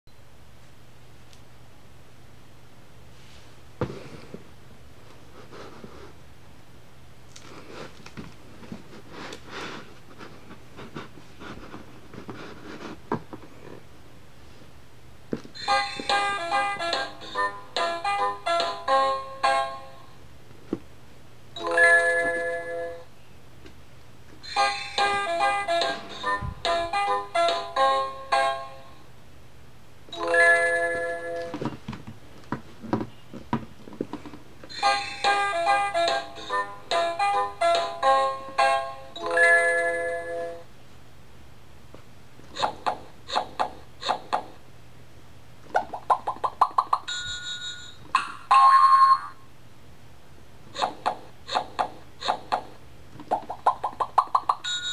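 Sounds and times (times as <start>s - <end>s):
electronic bell-like chime: 47.1s - 48.0s, 54.6s - 54.9s.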